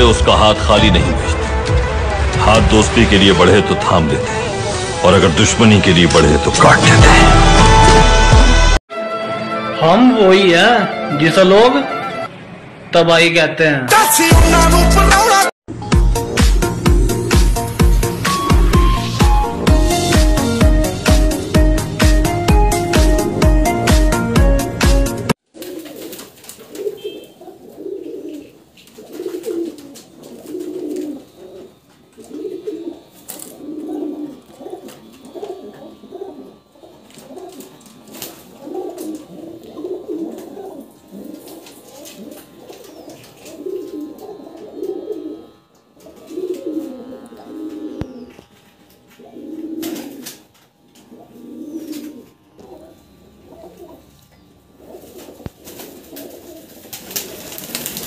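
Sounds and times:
pigeons cooing: 16.2 - 23.9, 25.5 - 58.0.

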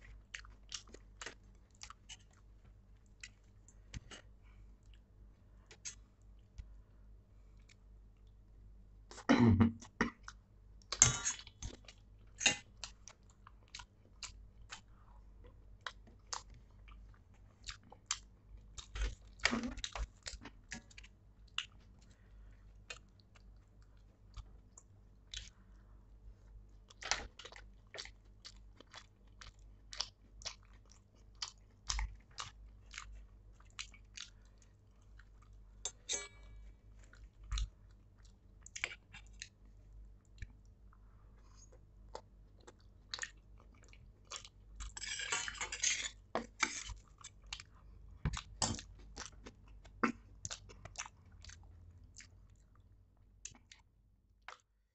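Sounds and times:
man chewing: 0.1 - 5.0, 26.9 - 39.6, 41.4 - 52.8
spoon scraping steel bowl: 36.0 - 36.4.

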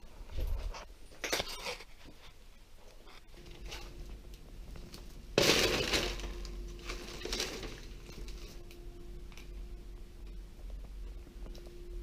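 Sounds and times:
faint steady hum: 0.0 - 12.0
loud breaking crash: 5.4 - 8.6.

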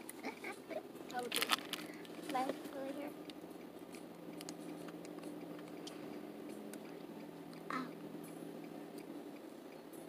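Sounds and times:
wet mouth clicks and smacks: 3.2 - 7.7.

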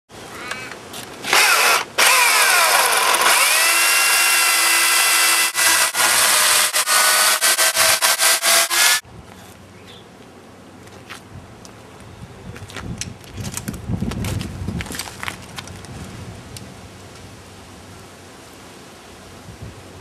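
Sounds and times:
electric chainsaw cutting log: 1.2 - 9.0.

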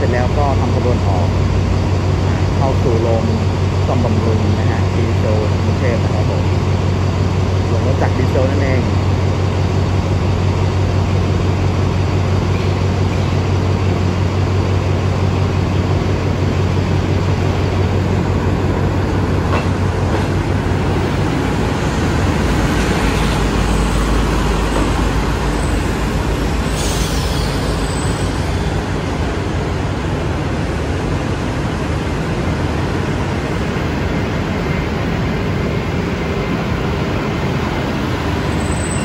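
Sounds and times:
train engine drone: 0.0 - 39.0
train wheels rumbling: 0.0 - 39.0
high-pitched squeal: 23.0 - 29.0, 38.5 - 39.0.

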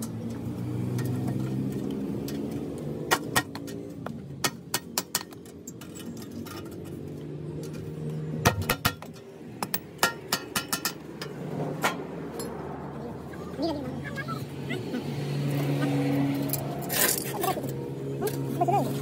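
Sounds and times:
hammer tapping steel on anvil: 8.4 - 11.0.

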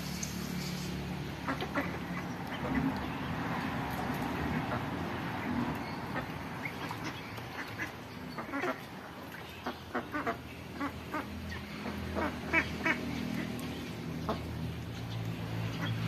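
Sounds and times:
ducks quacking: 1.3 - 3.4, 4.3 - 14.6.

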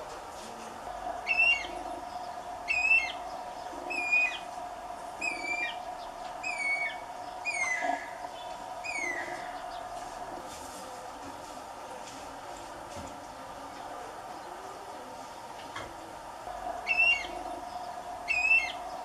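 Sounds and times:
faint steady hum: 0.0 - 19.0
cuckoo whistled calls: 1.2 - 1.8, 2.6 - 3.2, 3.9 - 4.5, 5.2 - 8.2, 8.8 - 9.6, 16.8 - 17.4, 18.2 - 18.9.

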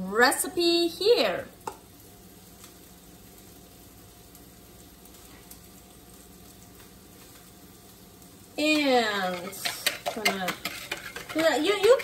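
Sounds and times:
steak sizzling in a pan: 0.0 - 12.0.

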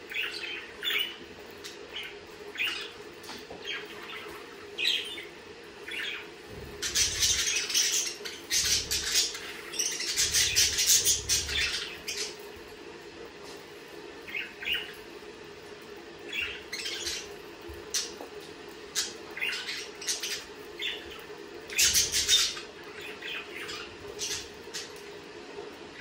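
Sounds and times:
faint low hum: 0.0 - 26.0
budgerigars chirping: 5.9 - 12.4, 16.2 - 18.2, 18.9 - 25.0.

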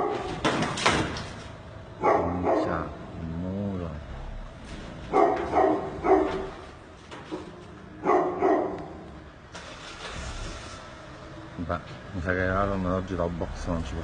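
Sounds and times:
dog barking: 0.0 - 0.3, 2.0 - 3.0, 5.1 - 6.7, 8.0 - 9.1.

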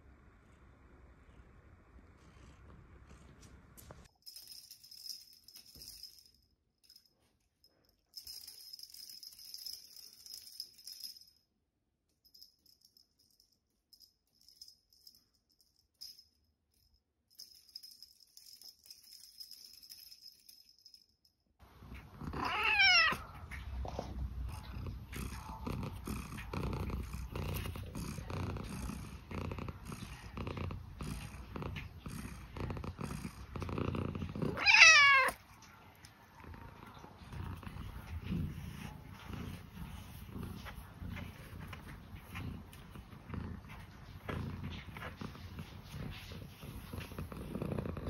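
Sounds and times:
cat purring: 0.4 - 4.1, 21.8 - 48.0
faint high jingling: 4.0 - 11.5
cat meowing: 22.3 - 23.4, 34.5 - 35.4.

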